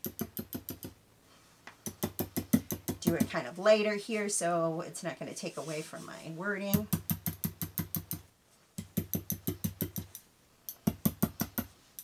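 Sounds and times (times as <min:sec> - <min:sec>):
hammer tapping on wood: 0:01.9 - 0:03.4, 0:06.8 - 0:08.2, 0:08.8 - 0:10.1, 0:10.7 - 0:11.7.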